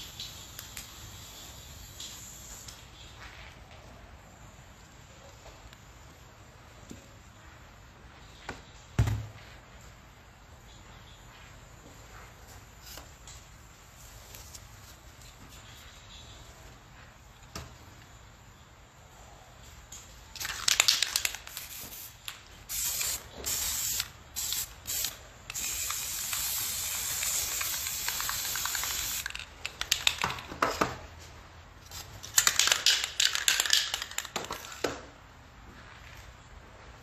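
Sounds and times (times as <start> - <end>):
spray paint can hissing: 0.0 - 3.0, 20.4 - 30.2
crackling and clicking: 28.0 - 30.4.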